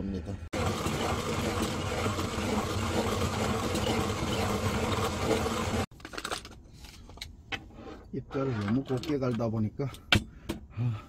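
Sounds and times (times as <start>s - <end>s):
hand coffee grinder grinding: 0.6s - 5.9s.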